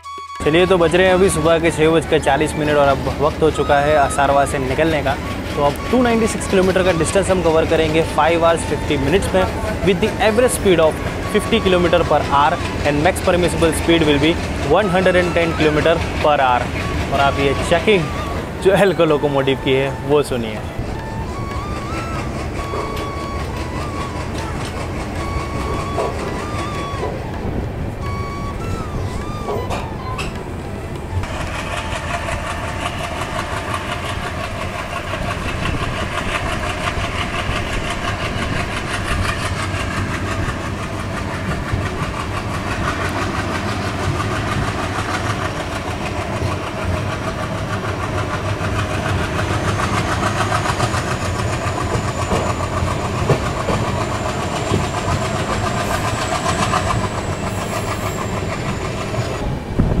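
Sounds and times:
diesel locomotive engine chugging: 0.0s - 60.0s
train wheels clattering on track: 0.2s - 60.0s.

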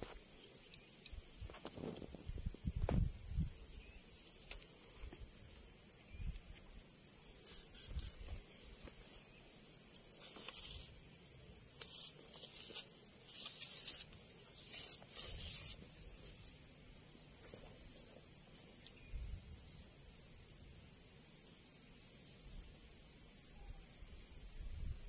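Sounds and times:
insects droning: 0.0s - 25.0s
rustles and scrapes: 1.5s - 3.0s, 10.1s - 11.0s, 11.8s - 16.5s.

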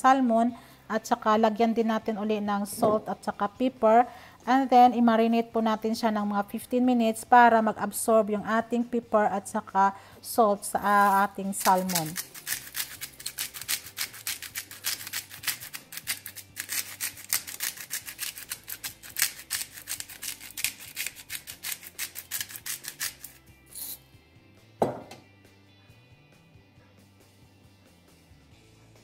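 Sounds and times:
seasoning shaker rattling: 10.9s - 24.0s
sharp knock: 24.8s - 25.2s.

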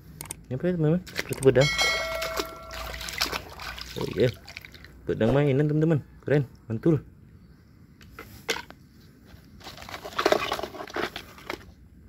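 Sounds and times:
hands splashing in water: 1.1s - 5.0s.

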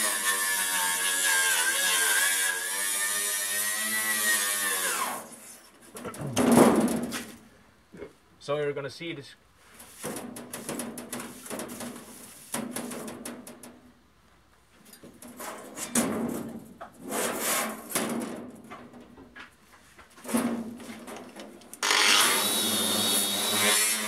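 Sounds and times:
metal sheet knocks: 6.0s - 7.3s, 10.0s - 13.9s, 15.1s - 17.0s, 17.8s - 19.2s
steel sheet scraping on concrete: 15.3s - 18.2s.

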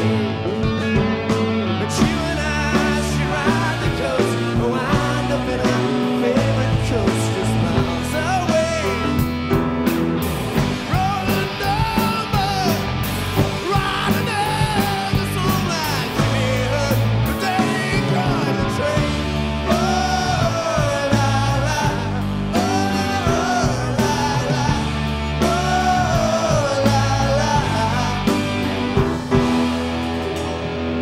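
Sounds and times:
rock band playing: 0.0s - 31.0s
singer holding long notes: 10.9s - 29.2s.

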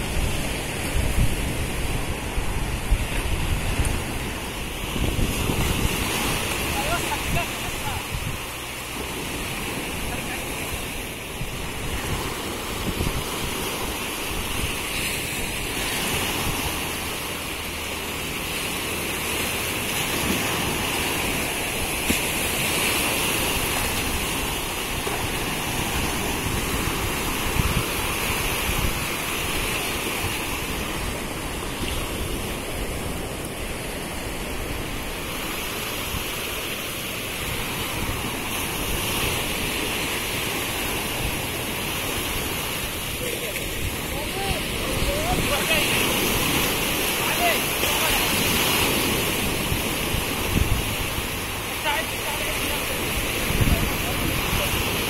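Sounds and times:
surf washing up a beach: 0.0s - 55.0s.

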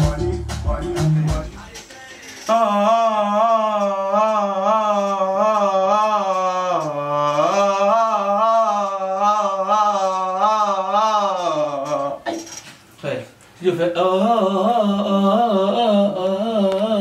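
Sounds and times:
person humming: 0.0s - 12.4s, 14.1s - 17.0s.

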